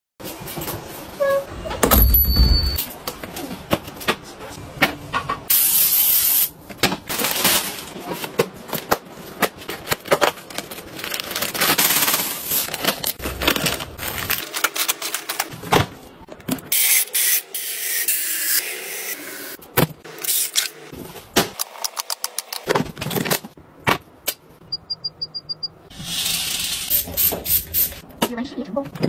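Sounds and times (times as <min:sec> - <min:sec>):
plastic and cardboard rustling: 0:06.8 - 0:16.7.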